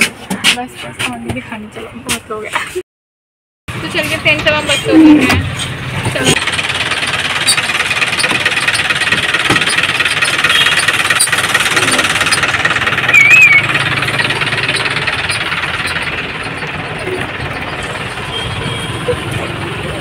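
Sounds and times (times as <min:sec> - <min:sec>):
bus engine running: 0:03.7 - 0:20.0
scooter passing: 0:06.6 - 0:20.0
wavering beep: 0:13.1 - 0:19.2.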